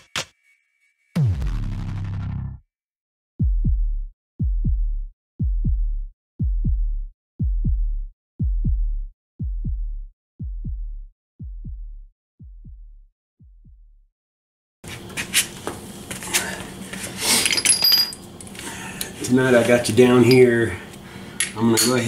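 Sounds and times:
electronic heartbeat thumps: 3.4s - 14.0s.

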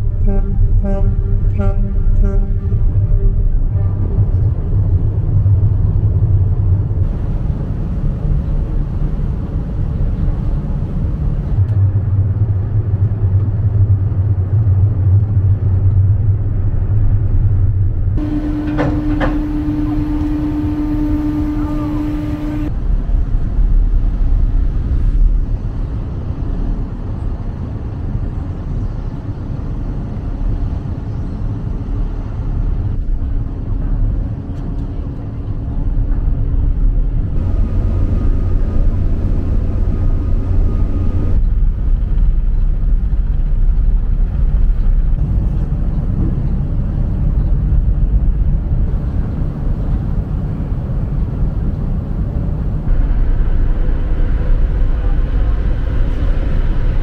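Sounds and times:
ferry engines rumbling: 0.0s - 57.0s
steady mid-pitched tone: 18.2s - 22.7s.

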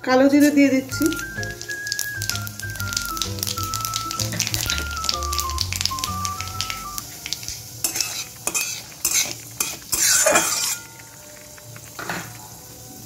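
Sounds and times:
background music: 0.0s - 13.0s
spices sizzling in oil: 0.0s - 13.0s
spatula scraping metal pan: 7.8s - 11.1s.

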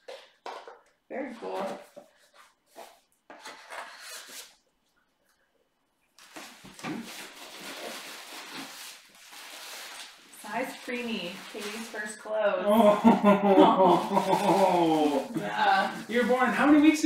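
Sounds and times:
paper wrapping rustling: 6.2s - 12.4s, 13.8s - 17.0s.

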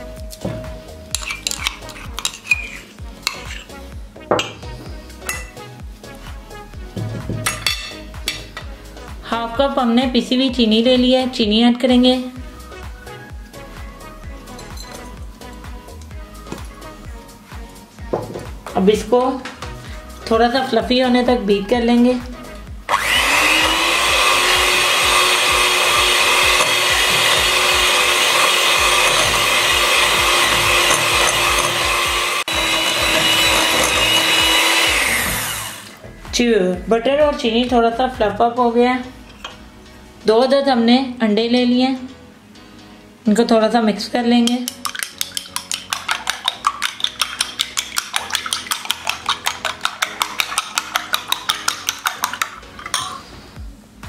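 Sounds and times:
spoon tapping bowl beating eggs: 0.3s - 3.7s, 23.0s - 35.1s, 44.4s - 53.2s
electric hand mixer running: 22.9s - 36.0s.

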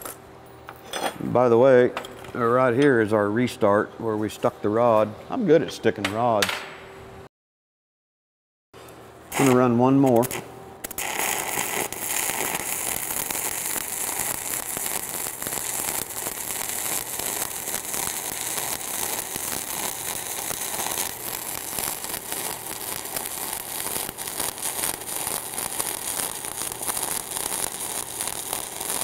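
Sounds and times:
welding arc crackling: 9.3s - 29.0s.

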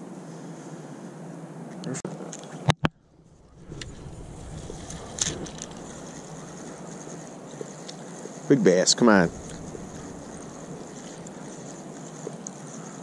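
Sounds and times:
steady rushing noise: 2.9s - 7.6s, 8.4s - 13.0s
spinning reel being cranked: 3.7s - 13.0s.

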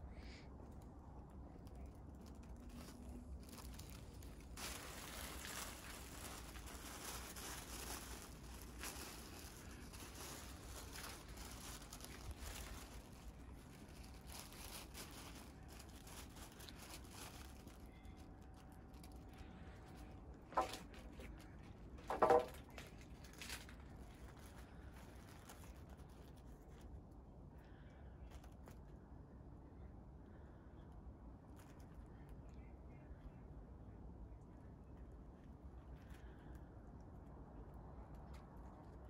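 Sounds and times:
tissue paper crinkling: 0.7s - 27.1s.

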